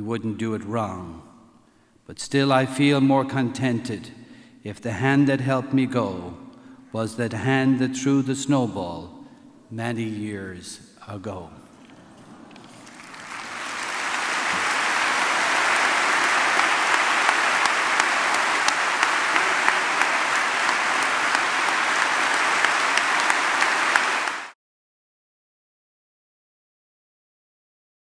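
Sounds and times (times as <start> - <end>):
congregation applauding: 11.9 - 24.6.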